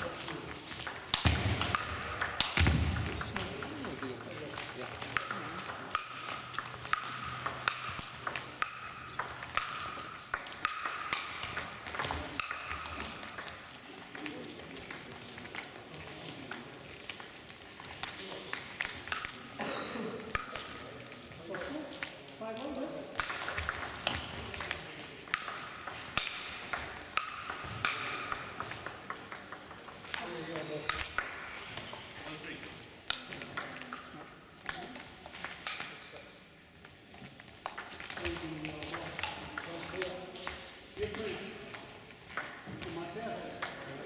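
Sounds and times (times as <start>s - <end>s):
table tennis ball hits: 0.1s - 15.8s, 16.5s - 19.5s, 23.2s - 31.5s, 37.6s - 44.0s.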